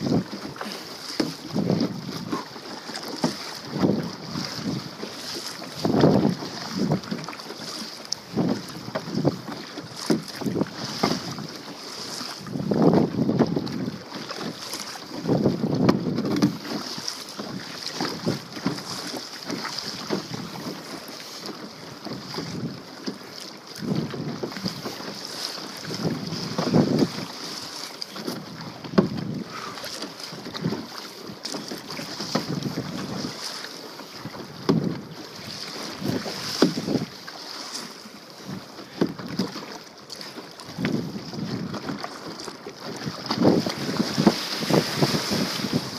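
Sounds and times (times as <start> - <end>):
wind on microphone: 0.0 - 2.5, 3.2 - 4.9, 5.7 - 7.3, 12.3 - 13.9, 15.2 - 16.7, 23.8 - 24.9, 25.8 - 27.4, 28.3 - 29.7, 31.8 - 33.5, 34.2 - 37.2, 40.6 - 42.0, 42.9 - 45.9
paddle splashes and drips: 0.0 - 45.9
water slapping plastic hull: 0.0 - 45.9.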